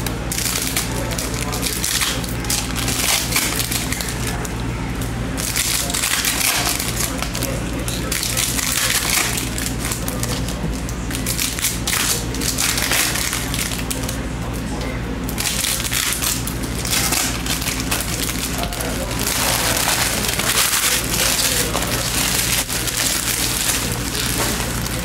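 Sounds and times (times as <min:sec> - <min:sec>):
cards rustling and wrappers crinkling: 0:15.3 - 0:25.0.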